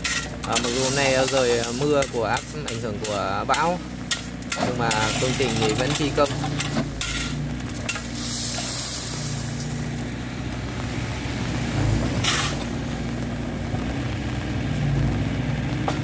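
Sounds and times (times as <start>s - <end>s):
excavator engine running: 0.0s - 16.0s
truck engine running: 0.0s - 16.0s
crushed stone pouring: 0.1s - 3.5s, 4.3s - 10.4s.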